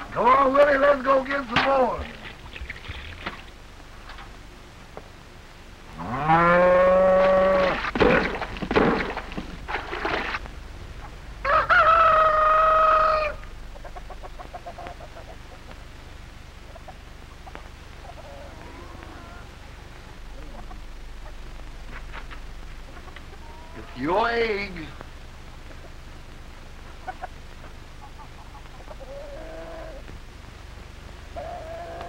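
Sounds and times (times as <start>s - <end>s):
hen clucking: 9.8s - 15.8s, 16.6s - 21.5s, 22.8s - 24.0s, 26.9s - 27.4s, 28.0s - 30.0s, 31.3s - 32.0s
rooster crowing: 11.4s - 13.5s, 18.1s - 19.6s, 31.4s - 32.0s.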